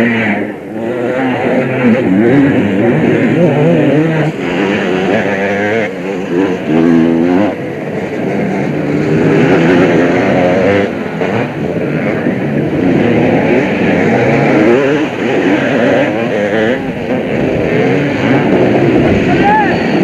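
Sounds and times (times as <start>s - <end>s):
motocross bike engines revving: 0.0s - 20.0s.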